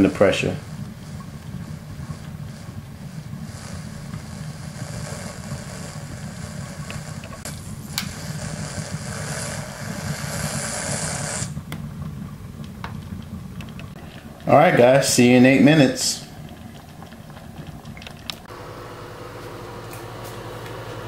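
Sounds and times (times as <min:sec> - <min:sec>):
pressure cooker steam hissing: 0:00.0 - 0:11.6
low steady hum: 0:00.0 - 0:20.2.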